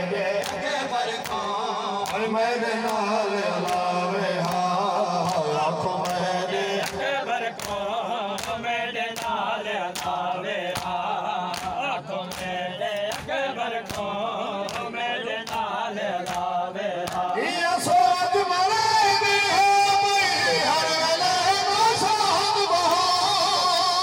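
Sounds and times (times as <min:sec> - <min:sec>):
rhythmic chest beating: 0:00.0 - 0:17.4
men chanting: 0:00.0 - 0:24.0.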